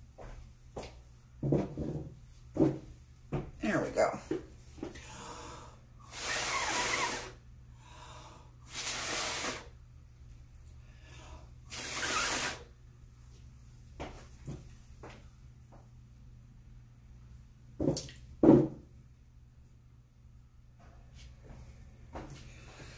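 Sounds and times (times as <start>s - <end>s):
person blowing breathy puffs: 5.0s - 7.4s, 8.6s - 9.7s, 11.7s - 12.7s.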